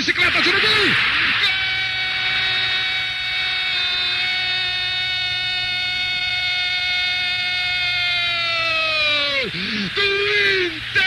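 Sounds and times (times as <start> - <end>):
commentator's drawn-out goal cry: 9.0 - 11.0.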